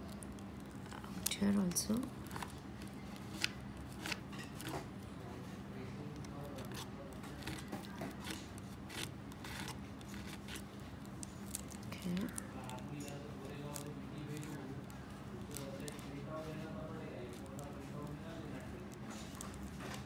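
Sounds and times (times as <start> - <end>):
faint steady hum: 0.0 - 20.0
palette knife scraping paste: 2.2 - 4.9, 6.2 - 10.7.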